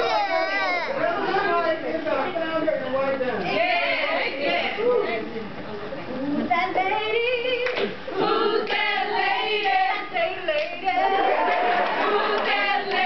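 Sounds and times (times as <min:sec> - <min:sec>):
women chanting in unison: 0:03.5 - 0:04.8, 0:06.8 - 0:13.0.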